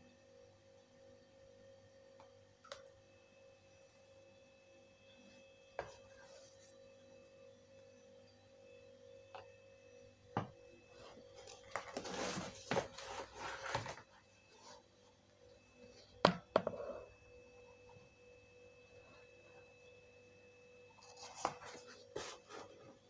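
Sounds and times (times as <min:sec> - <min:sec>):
faint hum tone: 0:00.0 - 0:23.0
plastic rustling and scraping: 0:10.9 - 0:14.8, 0:21.0 - 0:23.0.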